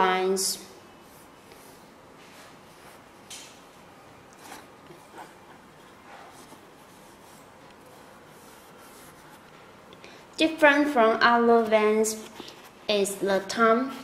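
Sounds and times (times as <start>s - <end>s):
low steady hiss: 0.0s - 14.0s
hands rustling a canvas sneaker: 4.3s - 9.7s.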